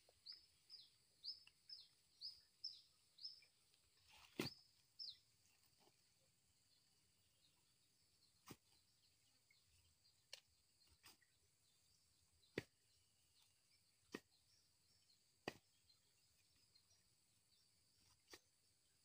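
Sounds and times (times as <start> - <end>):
coconuts knocking together: 15.4 - 15.7.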